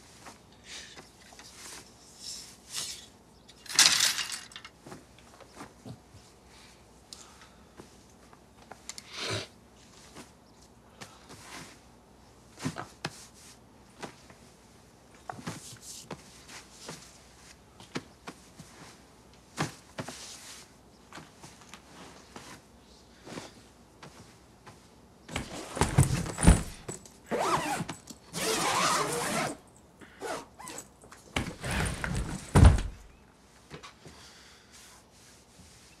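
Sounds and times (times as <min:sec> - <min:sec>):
rustling in suitcase: 0:25.3 - 0:33.2.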